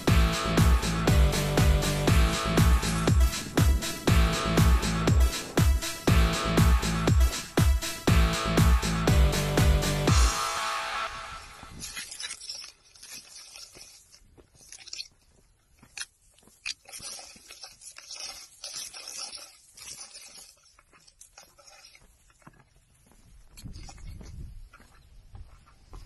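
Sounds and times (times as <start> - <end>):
grass and leaves rustling on camera: 11.4 - 26.0.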